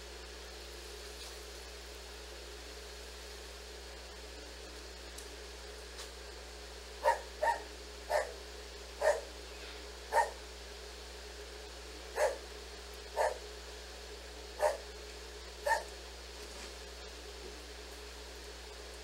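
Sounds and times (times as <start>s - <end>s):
dog barking: 7.0s - 8.4s, 9.0s - 9.3s, 10.1s - 10.4s, 12.2s - 12.4s, 13.2s - 13.4s, 14.6s - 14.8s, 15.6s - 15.9s.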